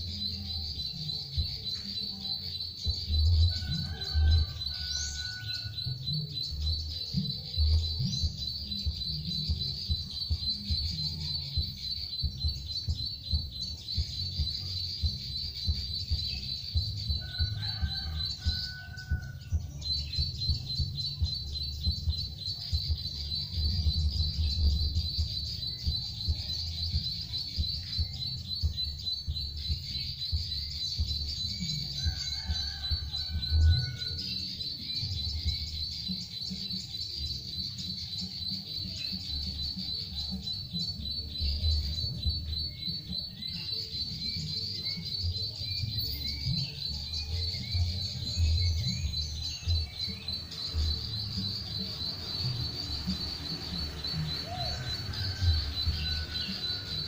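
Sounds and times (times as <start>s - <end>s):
recorded bird chirping: 0.0s - 57.0s.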